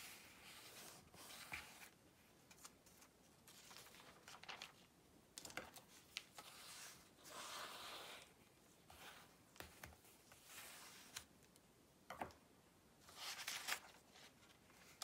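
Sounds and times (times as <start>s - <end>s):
book pages rustling: 0.0s - 11.6s, 13.1s - 15.0s
paper taps and crinkles: 2.5s - 6.4s, 9.6s - 10.1s.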